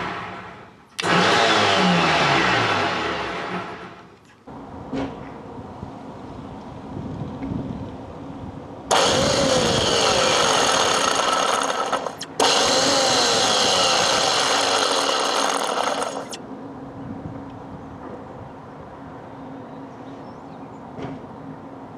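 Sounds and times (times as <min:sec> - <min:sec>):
electric bow thruster running: 0:00.0 - 0:04.0, 0:08.9 - 0:16.4.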